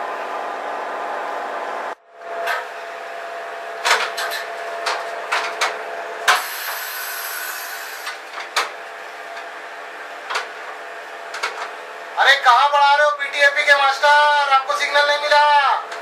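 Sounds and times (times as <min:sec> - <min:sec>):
machinery hum: 0:00.0 - 0:16.0
sharp clicks and knocks: 0:10.3 - 0:10.5, 0:11.3 - 0:11.7.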